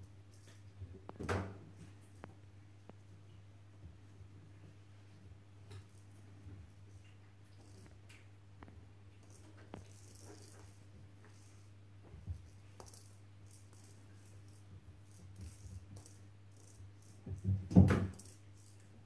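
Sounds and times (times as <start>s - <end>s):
toy ball rattling on tile: 9.2s - 11.7s, 12.4s - 17.5s, 18.1s - 18.8s.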